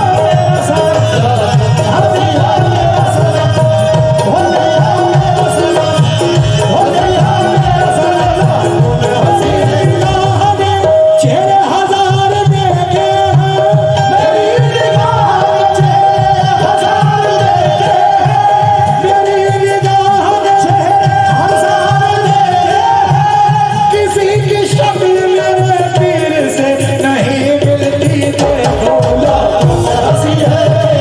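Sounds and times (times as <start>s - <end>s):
hand drum rhythm: 0.0s - 31.0s
harmonium melody: 0.0s - 31.0s.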